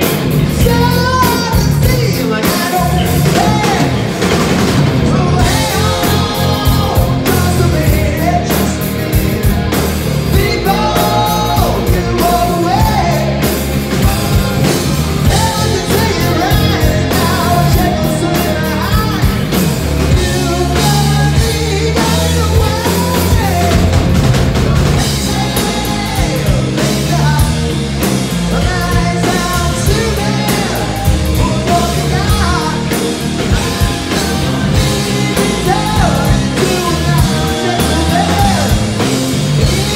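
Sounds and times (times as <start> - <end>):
bass guitar: 0.0 - 39.9
drum kit: 0.0 - 39.9
electric guitar: 0.0 - 39.9
person singing: 0.4 - 4.2, 5.0 - 27.7, 28.4 - 39.9.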